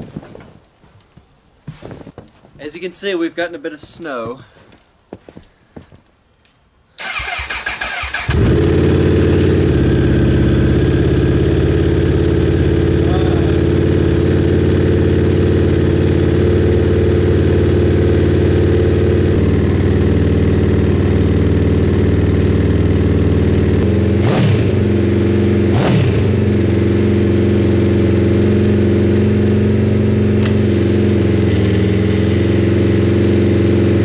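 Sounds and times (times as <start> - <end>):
engine cranking and idling: 7.0 - 24.9.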